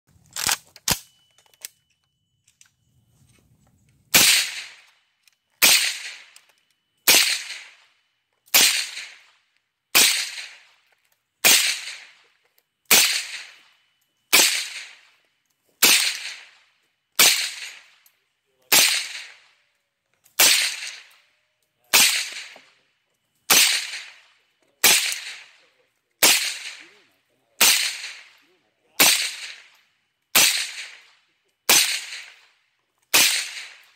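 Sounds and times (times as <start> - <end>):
sharp clicks: 0.2 - 2.8
suppressed rifle shots: 4.1 - 5.0, 5.6 - 6.5, 7.1 - 7.9, 8.5 - 10.8, 11.4 - 12.2, 12.9 - 13.7, 14.3 - 15.2, 15.8 - 16.6, 17.2 - 18.0, 18.7 - 19.5, 20.4 - 21.2, 21.9 - 22.7, 23.5 - 25.6, 26.2 - 27.0, 27.6 - 28.4, 29.0 - 32.5, 33.1 - 33.9.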